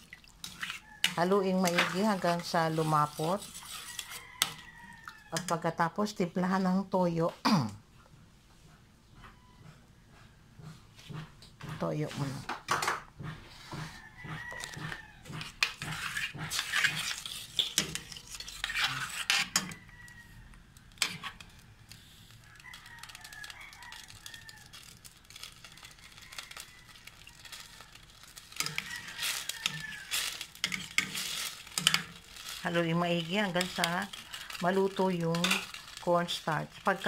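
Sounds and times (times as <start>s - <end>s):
spatula scraping metal pan: 0.3s - 5.6s, 13.2s - 20.2s, 20.9s - 37.0s.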